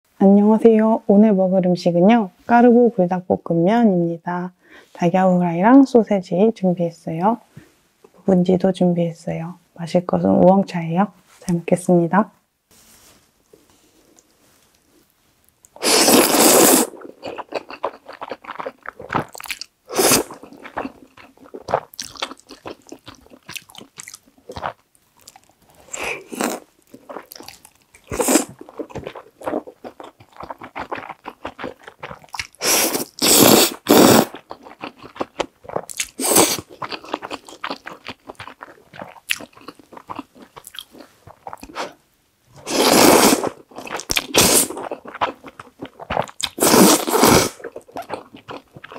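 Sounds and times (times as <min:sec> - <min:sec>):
wet chewing: 0:15.6 - 0:42.0, 0:42.6 - 0:48.9
noodle slurping: 0:15.8 - 0:20.8, 0:30.4 - 0:34.4, 0:42.6 - 0:45.2, 0:46.0 - 0:47.7.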